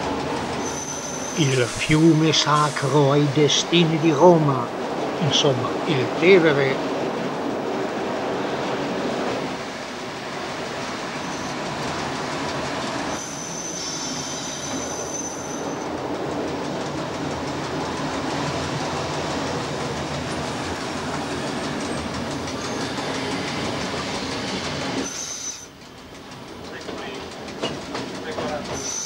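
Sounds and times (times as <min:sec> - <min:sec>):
high wheel squeal: 0:00.0 - 0:03.6, 0:11.1 - 0:11.7, 0:13.0 - 0:15.9, 0:21.4 - 0:25.8, 0:28.4 - 0:29.0
railcar running on track: 0:00.0 - 0:29.0.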